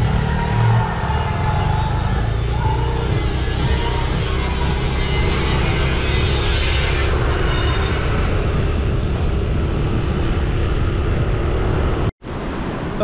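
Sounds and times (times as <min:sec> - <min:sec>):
motorbike engine running: 0:00.0 - 0:07.3.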